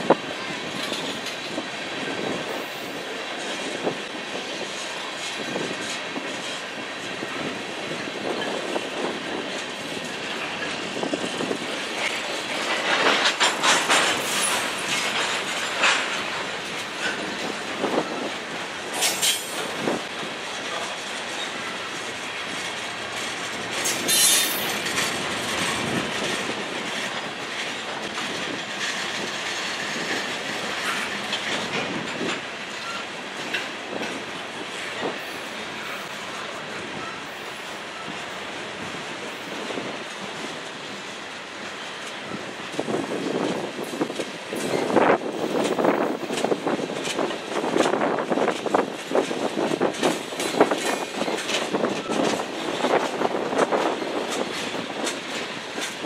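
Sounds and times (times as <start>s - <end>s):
freight train rumbling by: 0.0s - 56.0s
wheels clicking over rail joints: 0.0s - 56.0s
high-pitched wheel squeal: 23.8s - 24.8s.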